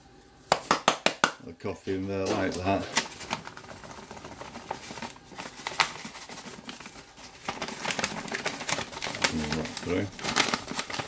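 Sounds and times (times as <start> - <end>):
paper rustling and crinkling: 2.3 - 11.0.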